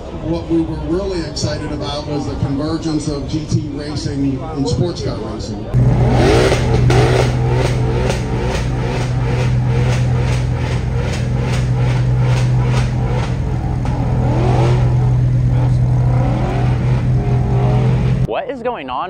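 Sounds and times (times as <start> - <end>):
supercar engines running loud: 0.0 - 18.3
regular pulsing: 5.8 - 18.3.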